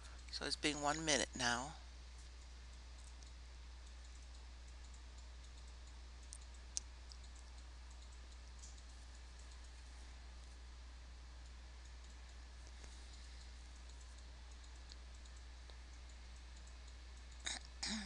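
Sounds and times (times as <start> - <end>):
steady low hum: 0.0 - 18.0
faint clicks: 2.2 - 9.8, 11.4 - 17.8.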